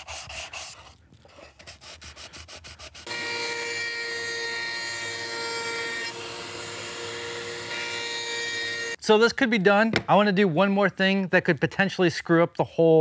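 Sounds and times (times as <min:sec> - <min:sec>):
sanding block scrubbing wood: 0:00.0 - 0:00.8, 0:01.6 - 0:03.1
router whining: 0:03.1 - 0:09.0.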